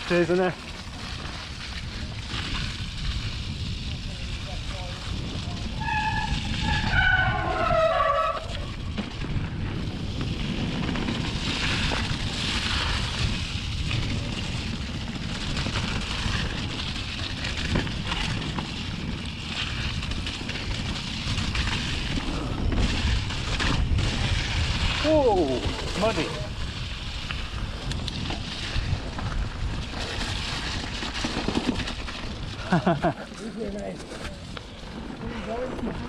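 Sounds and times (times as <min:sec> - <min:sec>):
bike tyres skidding over mud: 0:00.0 - 0:36.0
bike knocks and rattles: 0:08.8 - 0:24.8.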